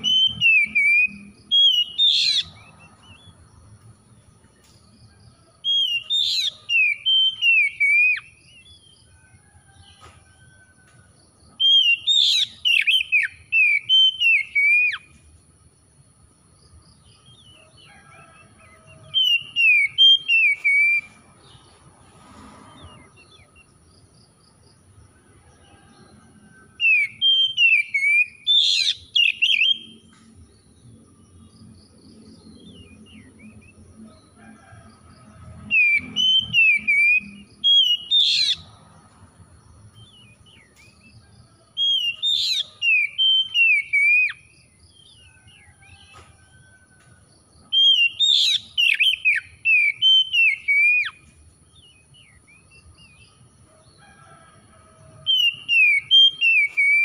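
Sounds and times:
bird singing whistled phrases: 0.0s - 2.5s, 5.8s - 8.3s, 11.7s - 15.0s, 26.9s - 30.0s, 47.8s - 51.2s.

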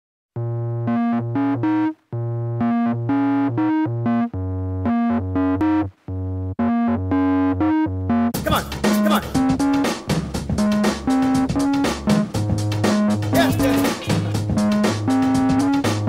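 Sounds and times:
steady bass line: 0.4s - 16.0s
synthesizer keyboard riff: 0.4s - 16.0s.

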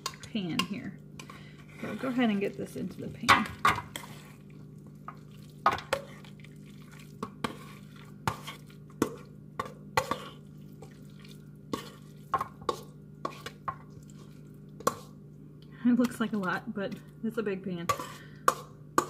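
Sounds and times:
utensil scraping a bowl: 0.0s - 3.0s, 3.7s - 11.0s, 11.7s - 15.2s, 17.8s - 19.0s
steady low hum: 0.0s - 19.0s.

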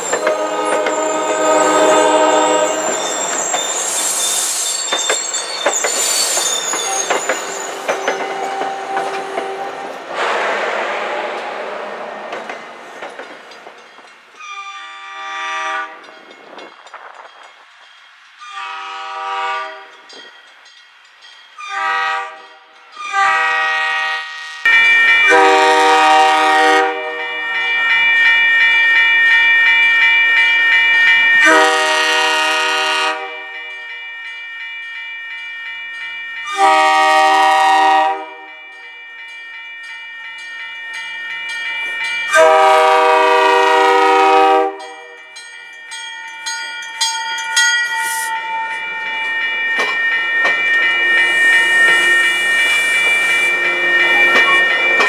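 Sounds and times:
crossing bell ringing: 0.0s - 10.1s, 12.0s - 55.0s
train air horn blasts: 0.1s - 3.3s, 8.0s - 12.1s, 14.4s - 16.1s, 18.4s - 19.9s, 21.6s - 24.7s, 25.3s - 27.4s, 31.4s - 33.7s, 36.5s - 38.5s, 42.3s - 45.0s.

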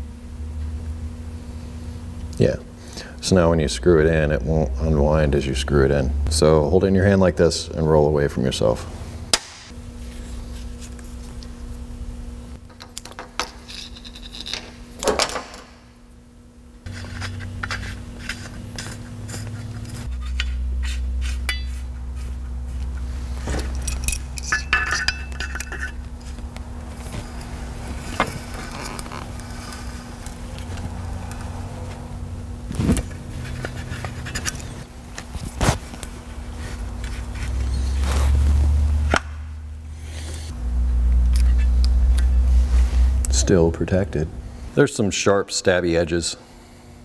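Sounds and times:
steady low hum: 0.0s - 47.0s
metal clinks and scrapes: 23.4s - 26.4s, 37.1s - 38.1s.

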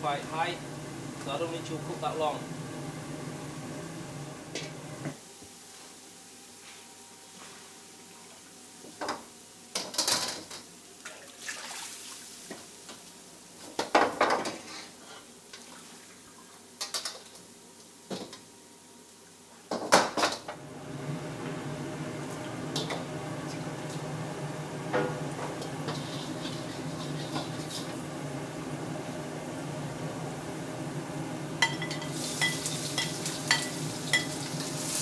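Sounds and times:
wok burner roar: 0.0s - 10.7s, 19.7s - 35.0s
metal wok clanking: 31.6s - 35.0s.

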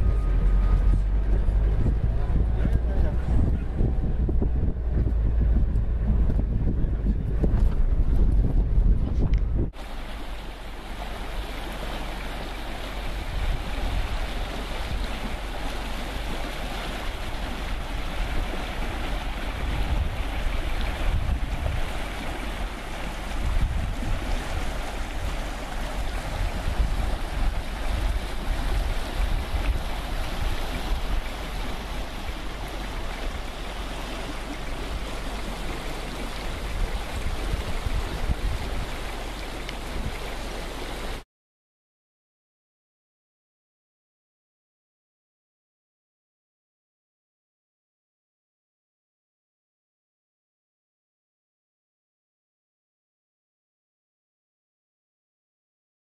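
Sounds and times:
wind buffeting microphone: 0.0s - 41.2s
river rushing over gravel: 9.8s - 41.2s.

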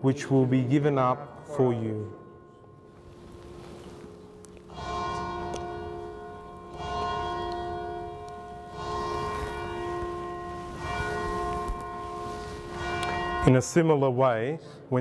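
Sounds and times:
bell ringing: 4.7s - 13.8s.

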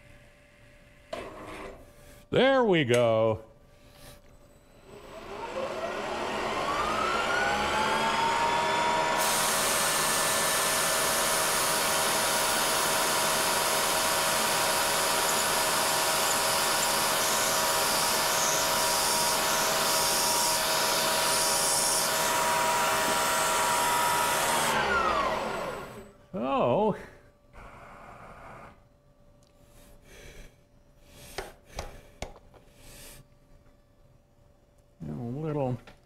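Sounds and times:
milling machine spindle whine: 4.8s - 26.1s.

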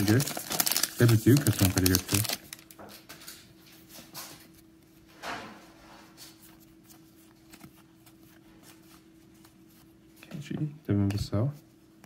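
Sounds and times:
faint steady hum: 0.0s - 12.0s
cards flipped by hand: 6.6s - 9.9s.

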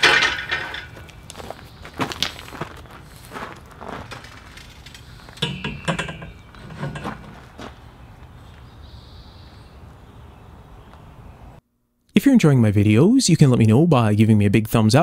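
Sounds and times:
metal pipe clanking: 0.0s - 1.2s, 4.1s - 7.7s
footsteps on gravel: 0.0s - 5.4s, 6.3s - 8.8s.

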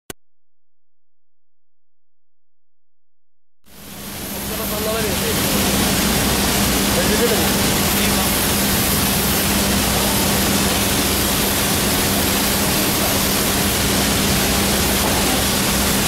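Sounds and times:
rushing hiss: 3.7s - 16.0s.

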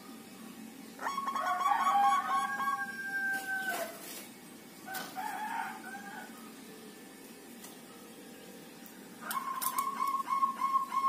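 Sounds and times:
dove cooing: 1.0s - 4.0s, 9.2s - 11.0s.

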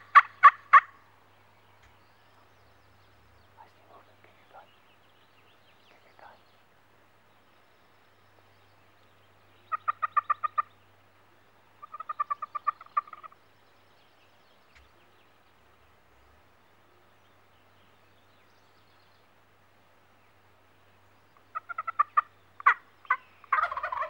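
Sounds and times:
turkey call notes: 0.0s - 1.0s, 9.6s - 10.7s, 11.8s - 13.4s, 21.4s - 24.0s.

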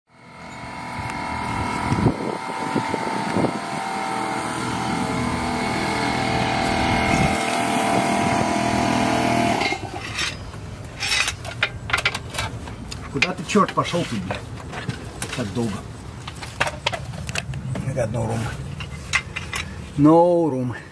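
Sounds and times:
motor humming: 0.1s - 10.4s.

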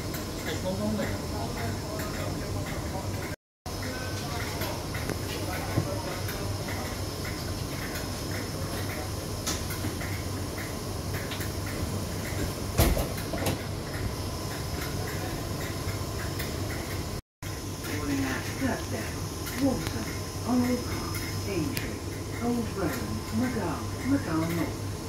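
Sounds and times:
electric train humming: 8.0s - 25.0s.

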